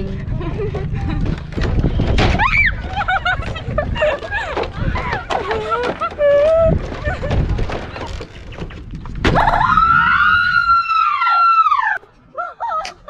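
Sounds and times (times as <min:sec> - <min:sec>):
scuffling clatter: 0:00.3 - 0:09.6
women shrieking: 0:02.4 - 0:02.9, 0:09.4 - 0:13.0.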